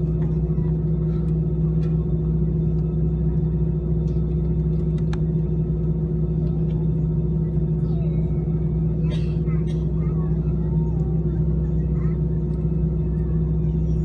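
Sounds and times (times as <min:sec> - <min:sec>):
airplane engine drone in cabin: 0:00.0 - 0:14.0.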